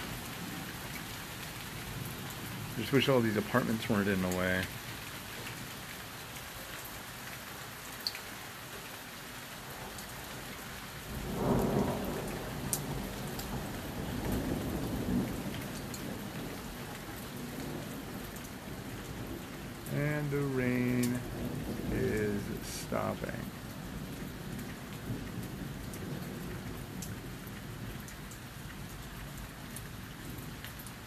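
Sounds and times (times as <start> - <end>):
steady rain falling: 0.0 - 31.0
thunder rumbling: 19.2 - 26.8.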